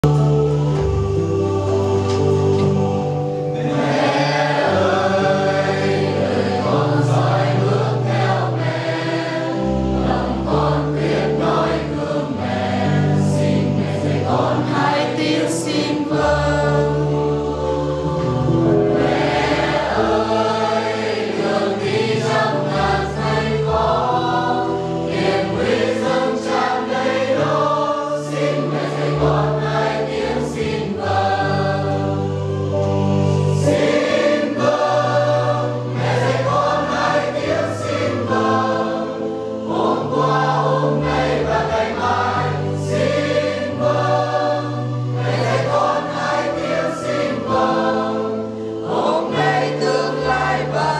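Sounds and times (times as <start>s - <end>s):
congregation singing a hymn: 0.0s - 50.9s
electronic keyboard chords: 0.0s - 50.9s.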